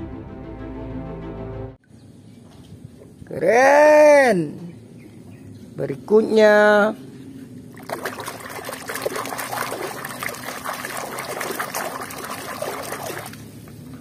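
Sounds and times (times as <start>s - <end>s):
hand sloshing in muddy water: 7.7s - 13.5s.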